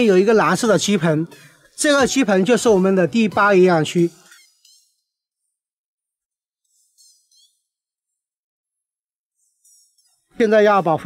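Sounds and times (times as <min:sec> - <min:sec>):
faint high-pitched chirps: 0:04.2 - 0:05.2, 0:06.7 - 0:07.8, 0:09.4 - 0:10.3.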